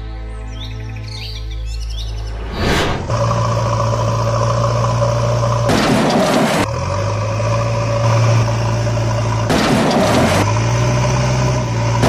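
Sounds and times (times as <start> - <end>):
short rushes of noise: 2.4 - 3.1
heavy diesel engine running: 3.0 - 12.0.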